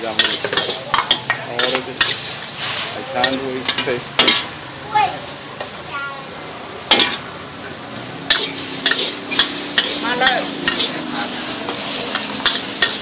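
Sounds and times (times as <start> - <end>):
metal spatulas scraping a wok: 0.0 - 4.5, 8.2 - 13.0
frying sizzle: 0.0 - 13.0.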